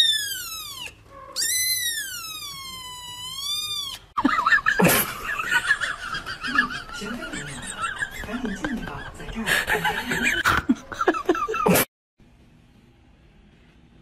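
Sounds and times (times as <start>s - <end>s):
kitten meowing: 0.0s - 4.1s.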